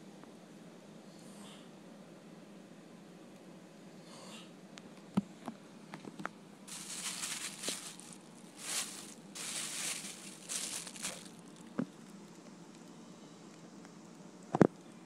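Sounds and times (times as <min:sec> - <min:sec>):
rustling crinkling handling noise: 0:06.7 - 0:11.9.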